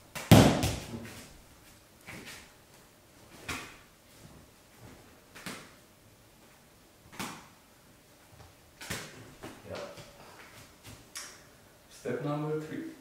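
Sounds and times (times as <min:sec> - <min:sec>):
juggling balls slapping into hand: 0:00.1 - 0:01.2, 0:03.3 - 0:03.8, 0:05.3 - 0:05.8, 0:07.1 - 0:07.6, 0:08.4 - 0:11.4
loud thud: 0:00.3 - 0:01.0.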